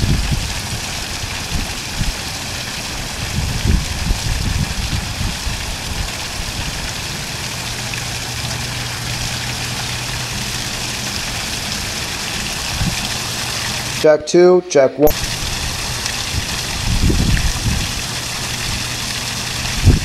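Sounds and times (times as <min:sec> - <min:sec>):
water splashing into pond: 0:00.0 - 0:14.0, 0:15.1 - 0:20.0
steady low hum: 0:03.2 - 0:14.1, 0:15.0 - 0:20.0.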